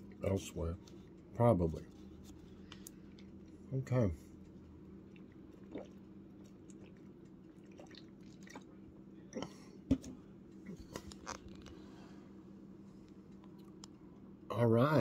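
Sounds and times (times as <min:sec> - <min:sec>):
person chewing food: 0:04.3 - 0:09.6.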